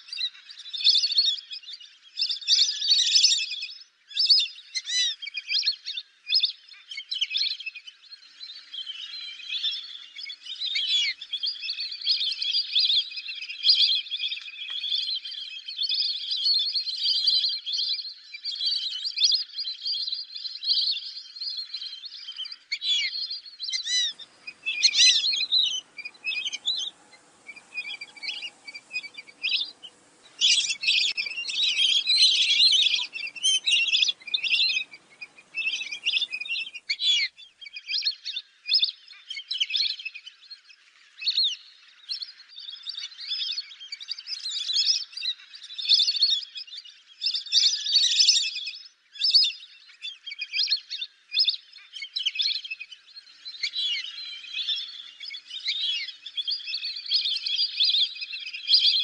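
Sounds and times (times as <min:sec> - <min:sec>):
ducks whistling calls: 0:23.8 - 0:37.3
faint low background noise: 0:23.9 - 0:37.7.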